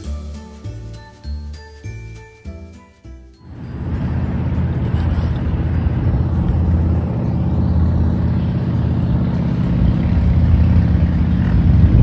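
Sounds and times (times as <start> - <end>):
wind buffeting microphone: 3.5 - 12.0.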